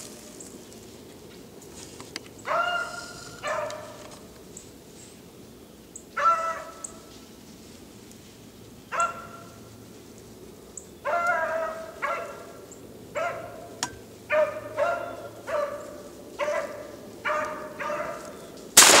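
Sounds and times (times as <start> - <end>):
dog baying: 14.4 - 18.3.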